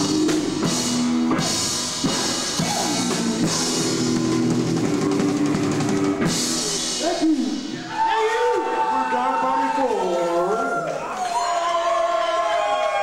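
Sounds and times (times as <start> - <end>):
electric guitar chords: 0.0 - 7.0
drum kit with crashing cymbals: 0.0 - 8.1.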